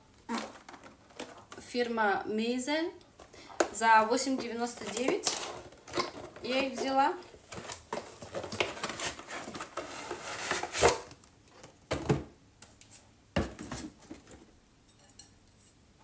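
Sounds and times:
cardboard packaging rustling: 0.2s - 1.7s, 3.2s - 11.7s.

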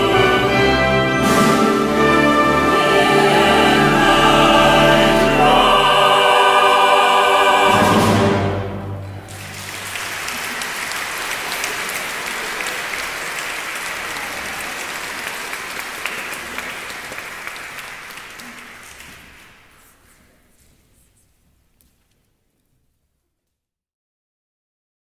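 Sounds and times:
choir and orchestra chord: 0.0s - 9.5s
audience applause: 9.2s - 19.8s.

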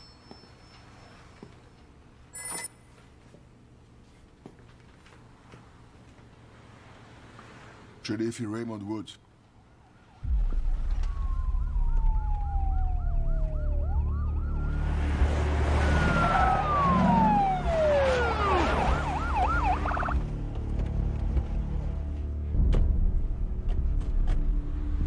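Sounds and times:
rumble of arriving vehicles: 9.3s - 25.0s
police sirens wailing and yelping: 9.8s - 20.2s.

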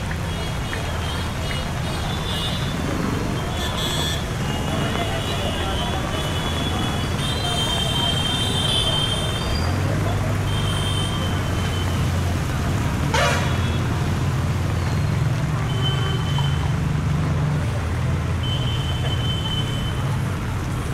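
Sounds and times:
vehicle engines humming: 0.0s - 20.9s
short car horn toots: 13.1s - 13.7s.

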